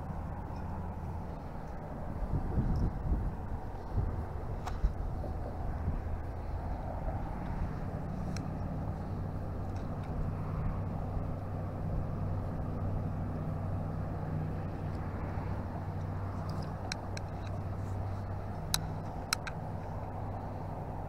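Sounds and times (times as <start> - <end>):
engine humming: 0.0 - 21.0.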